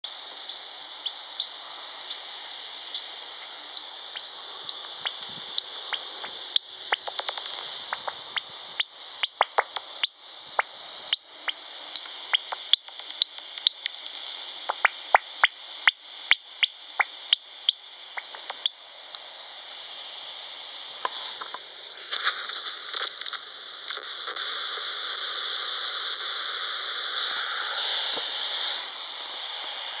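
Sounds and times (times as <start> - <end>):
loud dense hiss: 0.0 - 30.0
bat detector hiss: 0.1 - 30.0
sharp irregular bat clicks: 6.9 - 8.2, 9.2 - 9.9.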